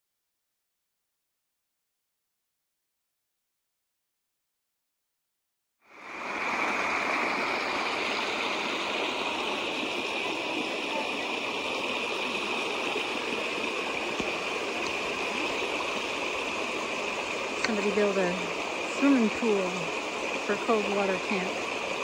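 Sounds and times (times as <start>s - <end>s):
creek water babbling: 5.8s - 22.0s.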